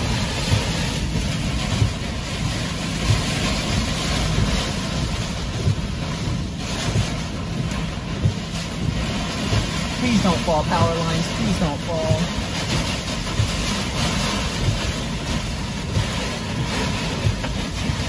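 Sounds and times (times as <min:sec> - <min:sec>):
wind and rain battering a car: 0:00.0 - 0:18.0.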